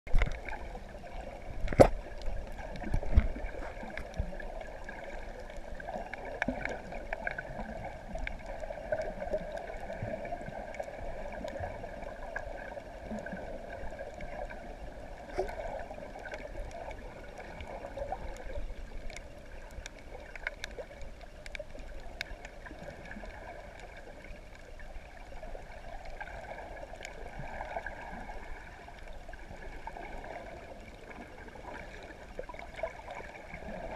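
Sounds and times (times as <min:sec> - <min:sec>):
underwater watery rush: 0:00.0 - 0:33.9
faint clicks: 0:00.1 - 0:00.7, 0:15.2 - 0:28.1.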